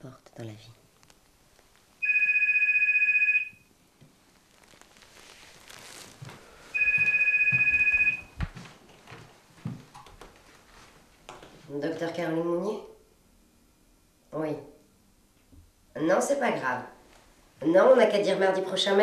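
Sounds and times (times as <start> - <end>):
telephone ringing: 2.0 - 3.7, 6.7 - 8.4.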